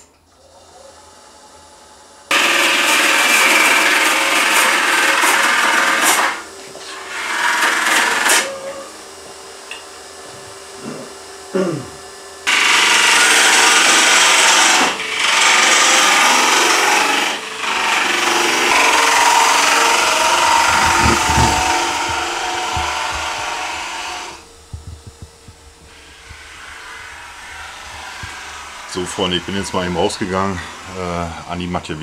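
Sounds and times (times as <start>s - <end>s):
lathe tool scraping wood: 2.3s - 8.6s, 12.5s - 31.6s.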